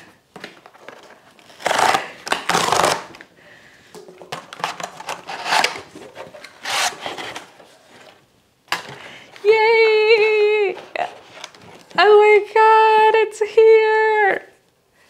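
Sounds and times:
tape ripping open: 0.9 - 3.3, 4.6 - 7.5
blade slitting packing tape: 1.4 - 3.2, 4.7 - 5.9, 6.5 - 7.5
cardboard flaps scraping and rustling: 4.6 - 8.2.

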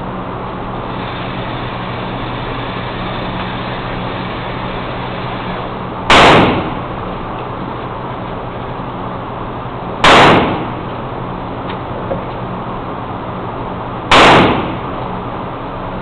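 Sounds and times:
steady background hum: 0.0 - 16.0
gunshot indoors: 6.1 - 6.9, 10.0 - 10.8, 14.1 - 14.9.

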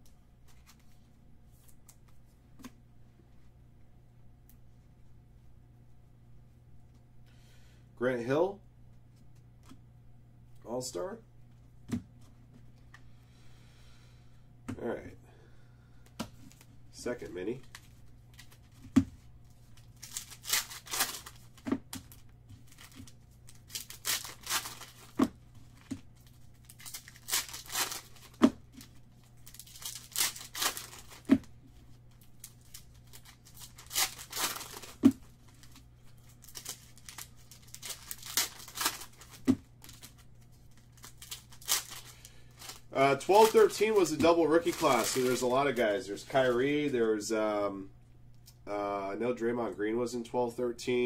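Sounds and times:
wrappers tearing and crinkling: 19.6 - 31.4, 32.1 - 46.6.

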